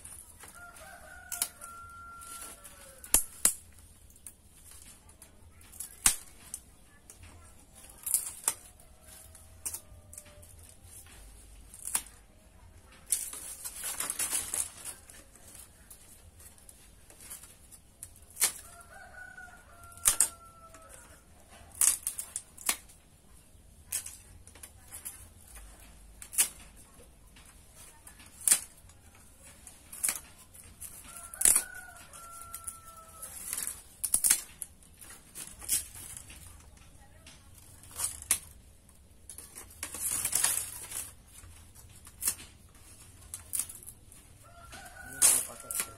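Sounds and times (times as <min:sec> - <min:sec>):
rooster crowing faintly: 0:00.0 - 0:03.5, 0:18.2 - 0:22.4, 0:27.7 - 0:38.6, 0:42.4 - 0:45.9
bamboo rustling: 0:00.0 - 0:45.9
bamboo strips snapping: 0:00.0 - 0:45.9.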